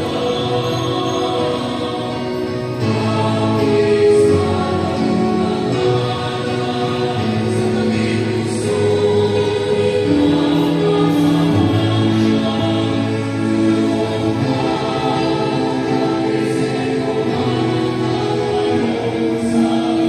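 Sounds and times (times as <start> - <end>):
choir singing a hymn: 0.0 - 20.0.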